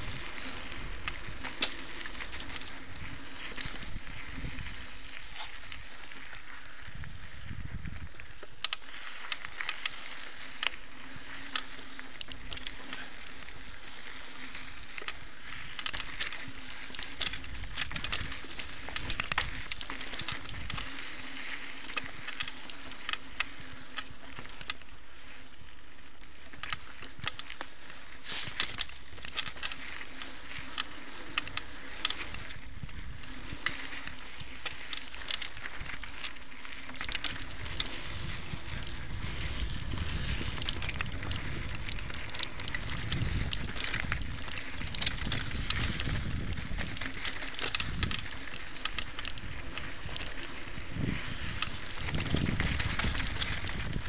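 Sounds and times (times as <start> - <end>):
wind noise on microphone: 0.0 - 9.0, 16.4 - 23.0, 30.4 - 36.2, 36.8 - 54.0
bike rattling over bumps: 0.0 - 54.0
bike tyres on gravel trail: 0.0 - 54.0.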